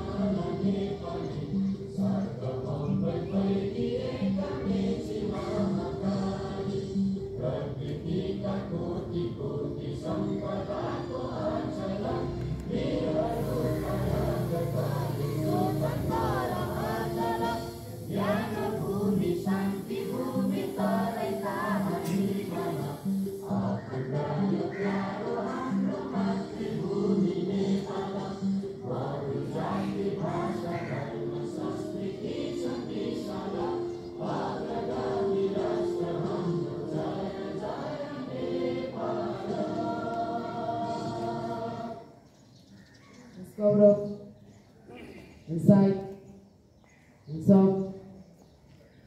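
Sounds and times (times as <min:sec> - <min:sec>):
group of voices singing: 0:00.0 - 0:42.5.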